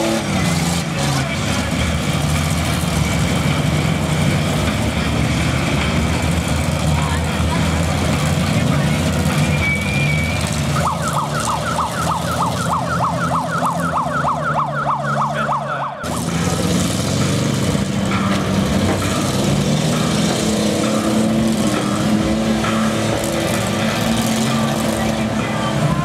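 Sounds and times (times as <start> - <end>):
car engines revving: 0.0 - 26.0
dusty arena noise: 0.0 - 26.0
electronic yelp siren wailing: 10.7 - 16.2.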